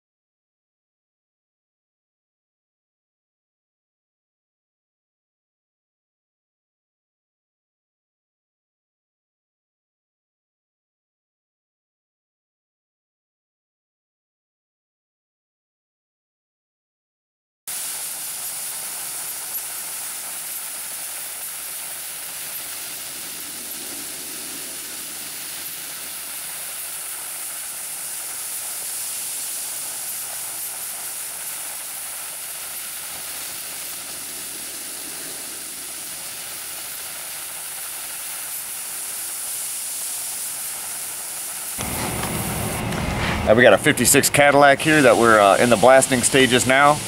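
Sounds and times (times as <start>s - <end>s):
soda blaster hissing: 17.7s - 47.0s.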